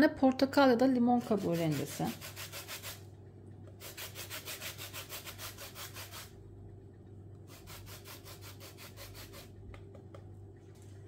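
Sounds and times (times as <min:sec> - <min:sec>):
grater scraping orange rind: 0:01.2 - 0:03.0, 0:03.8 - 0:06.3, 0:07.5 - 0:09.5.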